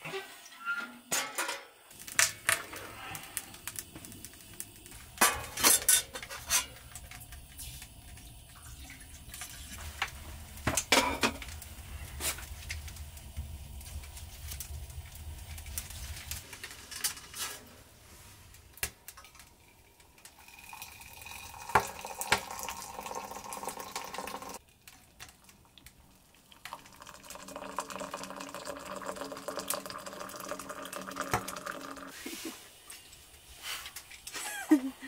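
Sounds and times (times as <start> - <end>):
water pouring into a cup: 19.5 - 32.2.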